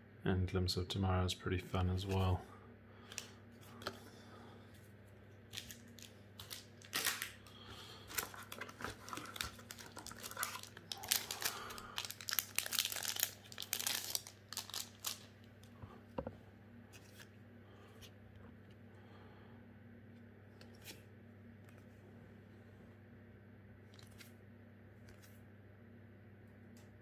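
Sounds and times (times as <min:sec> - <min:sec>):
foil wrapper crinkling and tearing: 0:05.5 - 0:15.3.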